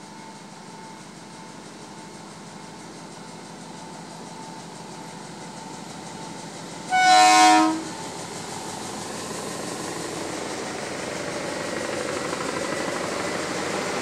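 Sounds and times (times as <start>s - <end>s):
train wheels on rails: 0.0s - 14.0s
locomotive air horn blast: 6.9s - 8.0s.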